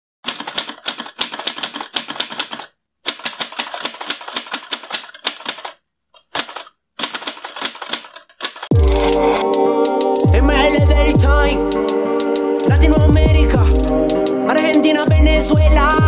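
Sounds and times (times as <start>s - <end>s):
rapid keyboard typing clicks: 0.2s - 9.3s.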